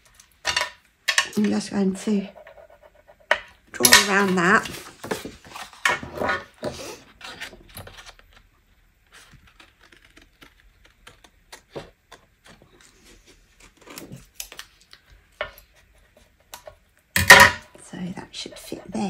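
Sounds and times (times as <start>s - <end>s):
card rustling: 7.1s - 14.9s.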